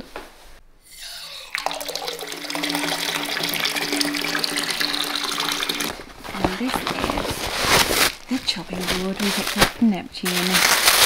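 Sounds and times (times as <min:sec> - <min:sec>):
water gushing into bath: 0:00.9 - 0:07.5
bath tap turned on: 0:01.0 - 0:06.1.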